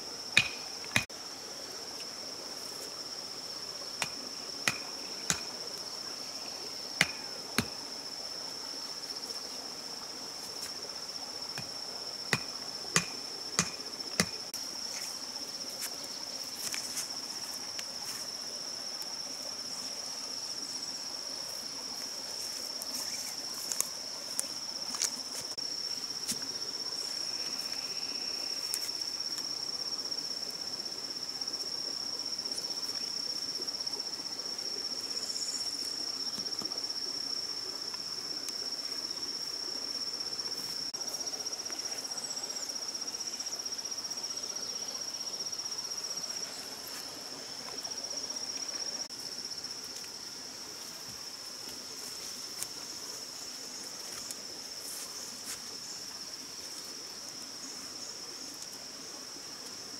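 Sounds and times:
forest insects droning: 0:00.0 - 0:59.9
stone knocking wooden stake: 0:00.4 - 0:01.1, 0:04.0 - 0:05.5, 0:07.0 - 0:07.8, 0:12.3 - 0:14.4.

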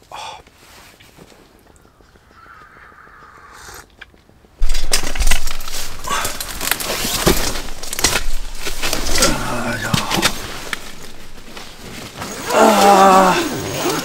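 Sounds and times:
tent fabric rustling and crackling: 0:00.5 - 0:01.7, 0:04.2 - 0:14.0
microphone handling bumps: 0:04.6 - 0:12.4.

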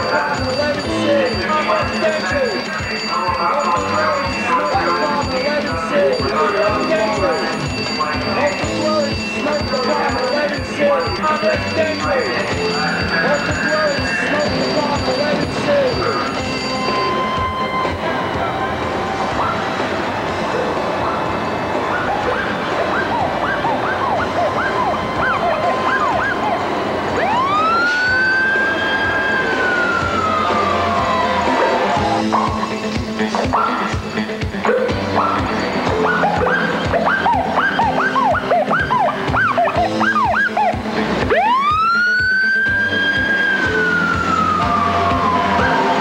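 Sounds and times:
music with a steady beat: 0:00.0 - 0:19.5, 0:30.0 - 0:46.0
fire engine siren: 0:00.0 - 0:32.9, 0:35.2 - 0:46.0
truck engine and road rumble: 0:00.0 - 0:46.0.

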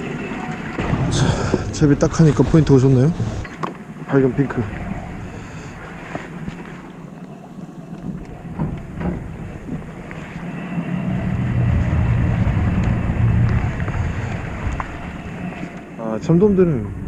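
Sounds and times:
wind rumbling on microphone: 0:00.0 - 0:17.0
faint clicks: 0:06.5 - 0:09.0.

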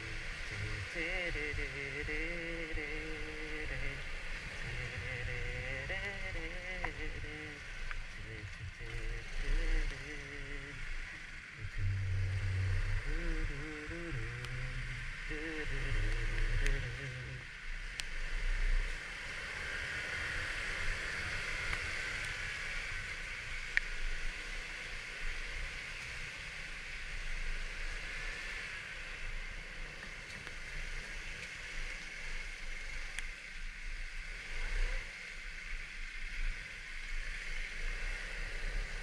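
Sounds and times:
wind and road noise hiss: 0:00.0 - 0:39.0.

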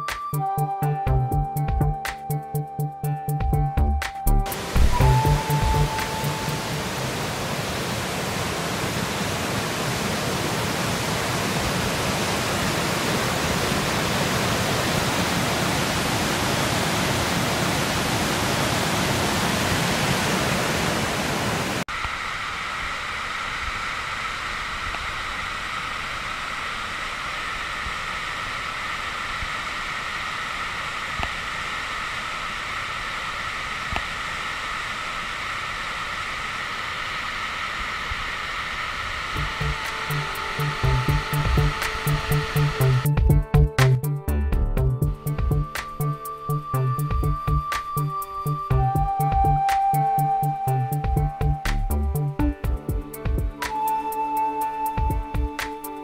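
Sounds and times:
waterfall rushing: 0:04.5 - 0:29.6, 0:38.5 - 0:43.1
distant waterfall rushing: 0:04.5 - 0:43.2.

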